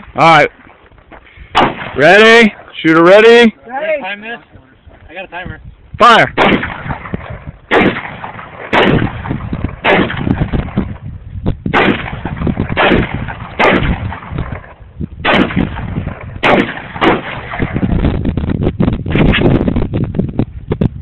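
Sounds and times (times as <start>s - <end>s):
shotgun shots echoing: 1.5s - 2.7s, 6.2s - 11.0s, 11.7s - 17.9s.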